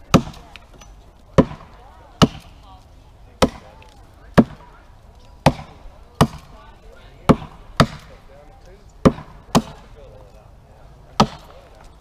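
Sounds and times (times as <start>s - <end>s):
axe chopping into tree trunk: 0.1s - 0.5s, 1.4s - 2.5s, 5.4s - 6.5s, 7.3s - 8.1s, 9.0s - 9.8s, 11.2s - 11.6s.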